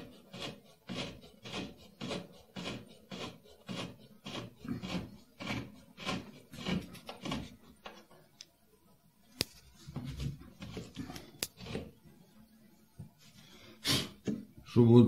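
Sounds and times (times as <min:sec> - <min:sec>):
spirit level scraping on metal: 0:00.0 - 0:07.7.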